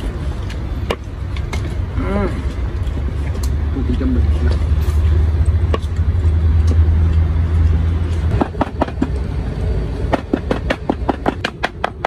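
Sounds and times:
vehicle engine rumble: 0:00.0 - 0:12.0
sharp knocks and clicks: 0:08.1 - 0:09.3, 0:10.1 - 0:12.0.

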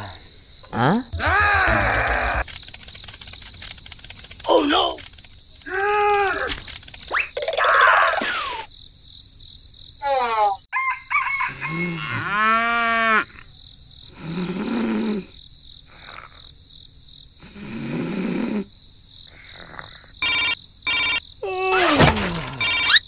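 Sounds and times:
rooster crowing: 0:10.7 - 0:12.3
snoring: 0:14.1 - 0:16.4, 0:17.4 - 0:18.7
phone ringing: 0:20.2 - 0:21.2, 0:22.6 - 0:23.0.

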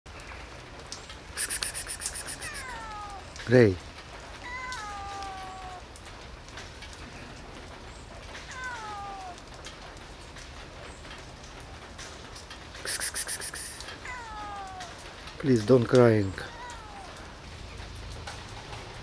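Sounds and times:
rain pattering: 0:00.1 - 0:19.0
short burst of clicks: 0:01.4 - 0:02.7, 0:12.8 - 0:14.0
cat meowing: 0:01.4 - 0:03.4, 0:04.4 - 0:06.0, 0:08.4 - 0:09.6, 0:12.9 - 0:15.1, 0:16.4 - 0:17.4.

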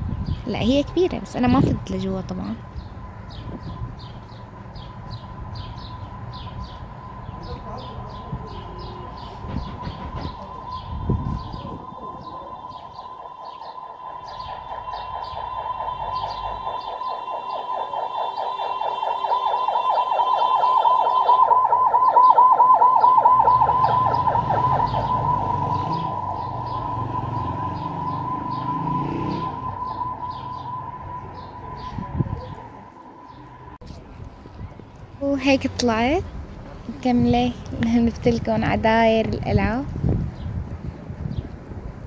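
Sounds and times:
siren wailing: 0:02.2 - 0:33.9.

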